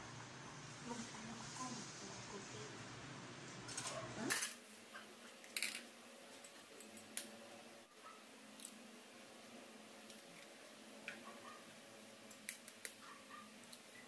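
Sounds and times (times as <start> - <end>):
plastic bowl set on tiles: 5.4 - 7.2
egg cracking: 12.2 - 13.9.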